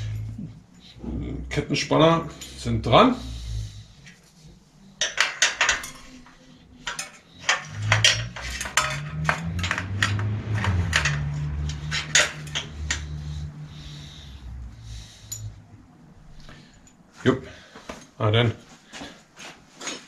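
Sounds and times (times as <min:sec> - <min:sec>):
metal parts clicking and clinking: 0:04.9 - 0:14.0, 0:15.2 - 0:15.6
low hum shifting in pitch: 0:06.4 - 0:17.0.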